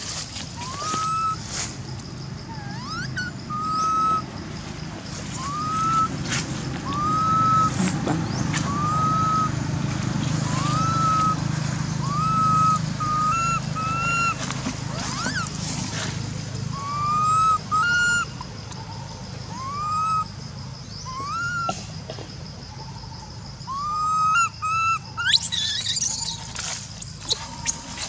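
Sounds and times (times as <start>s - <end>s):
infant monkey crying: 0.6s - 1.4s, 2.4s - 4.2s, 5.4s - 6.1s, 6.8s - 9.6s, 10.4s - 15.6s, 16.7s - 18.5s, 19.4s - 20.4s, 21.0s - 21.8s, 23.6s - 28.0s
low steady rumble: 1.4s - 21.2s.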